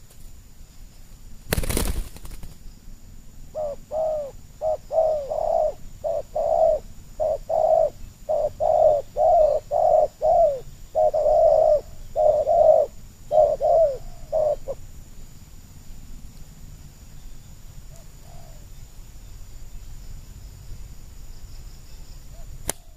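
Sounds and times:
doves cooing: 0:03.5 - 0:14.8.

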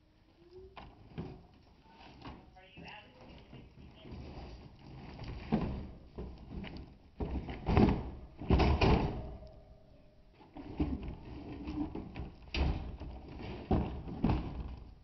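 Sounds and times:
plastic tank in cage clanking: 0:04.2 - 0:09.4, 0:10.5 - 0:15.0.

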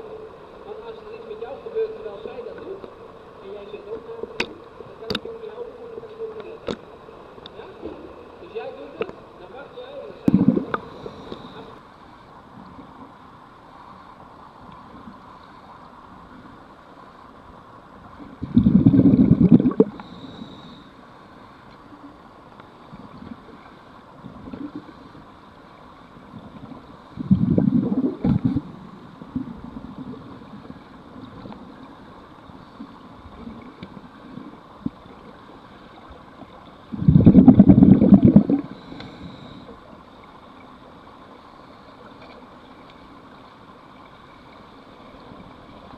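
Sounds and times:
rumbling diver bubbles: 0:10.2 - 0:11.4, 0:18.3 - 0:20.2, 0:24.2 - 0:25.1, 0:26.3 - 0:31.6, 0:36.9 - 0:38.9
underwater hiss: 0:10.2 - 0:12.2, 0:18.4 - 0:21.6, 0:36.9 - 0:40.0.

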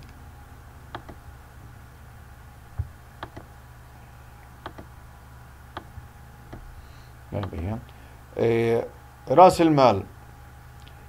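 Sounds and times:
low hum: 0:00.0 - 0:11.0
computer mouse clicking: 0:00.9 - 0:01.2, 0:03.2 - 0:03.5, 0:04.6 - 0:04.9, 0:07.4 - 0:07.7.

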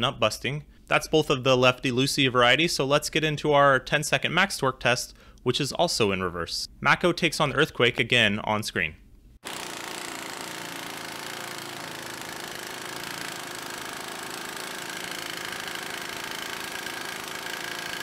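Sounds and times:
impact wrench hammering: 0:09.4 - 0:18.0.

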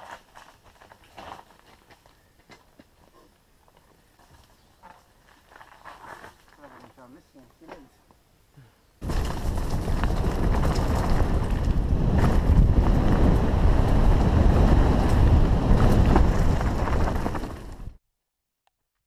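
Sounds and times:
wind buffeting microphone: 0:09.0 - 0:18.0.

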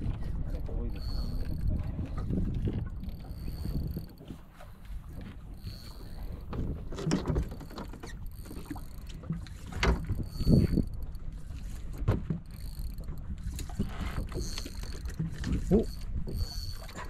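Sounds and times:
boat engine low rumble: 0:00.0 - 0:17.0
dull knocks and clunks: 0:06.4 - 0:08.2, 0:11.9 - 0:12.5.

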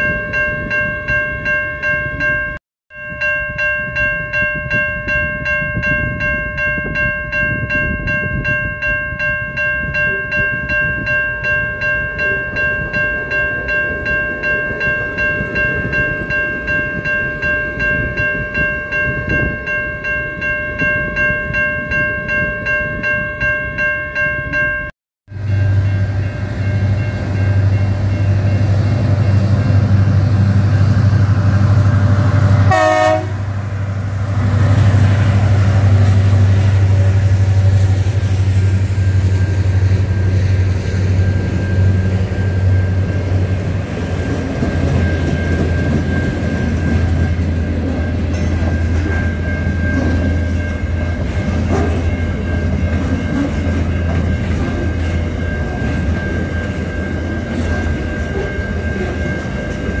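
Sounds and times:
diesel locomotive engine rumble: 0:25.3 - 1:00.0
train horn blast: 0:31.6 - 0:33.9.

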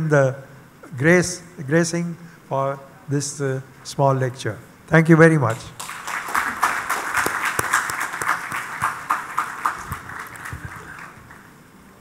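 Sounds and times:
audience applauding: 0:05.5 - 0:11.6.

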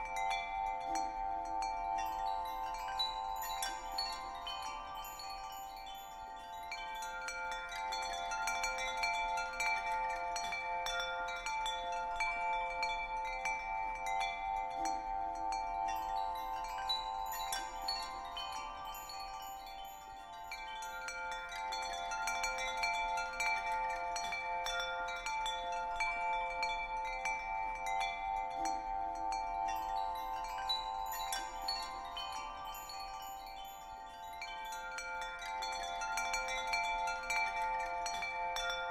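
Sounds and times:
chimes ringing: 0:25.1 - 0:38.9.

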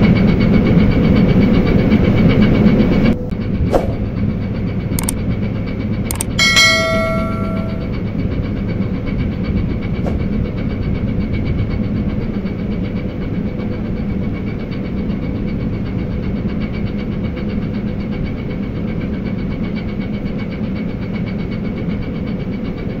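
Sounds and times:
engine low drone: 0:00.0 - 0:22.7.

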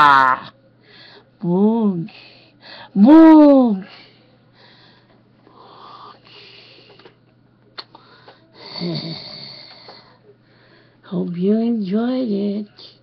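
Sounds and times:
man breathing: 0:03.9 - 0:07.1, 0:09.8 - 0:11.0.

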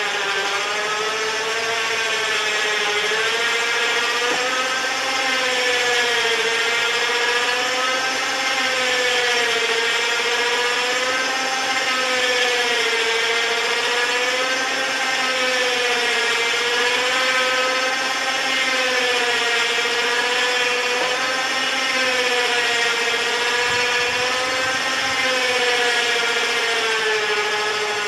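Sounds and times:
electric motor whining: 0:00.0 - 0:28.0.

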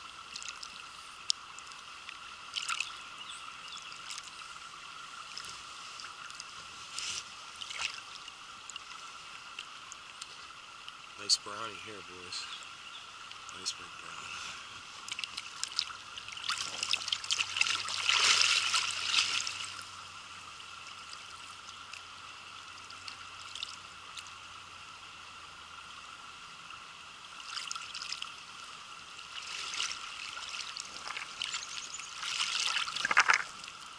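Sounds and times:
creek water trickling: 0:00.0 - 0:33.9
fish splashing in water: 0:00.2 - 0:03.0, 0:07.5 - 0:09.0, 0:15.0 - 0:19.9, 0:27.4 - 0:28.4, 0:29.2 - 0:33.9
wading boots splashing: 0:06.9 - 0:08.1, 0:15.0 - 0:19.8, 0:29.3 - 0:33.6.

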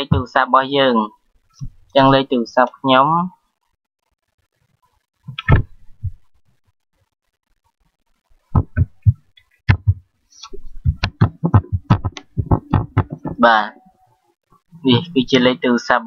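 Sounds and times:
keyboard keys tapping: 0:08.5 - 0:13.6.

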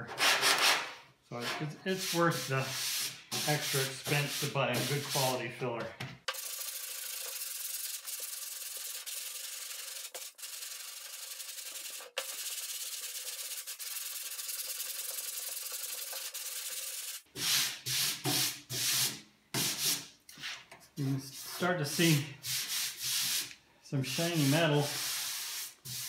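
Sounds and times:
hand sandpaper strokes: 0:01.4 - 0:05.4, 0:06.3 - 0:20.6, 0:21.2 - 0:26.0
sanding board rasping: 0:01.9 - 0:05.4, 0:06.3 - 0:19.9, 0:24.1 - 0:26.0.

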